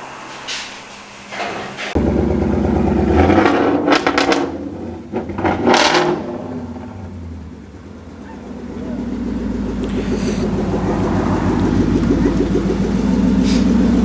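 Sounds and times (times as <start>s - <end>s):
car engine revving: 1.9s - 14.0s.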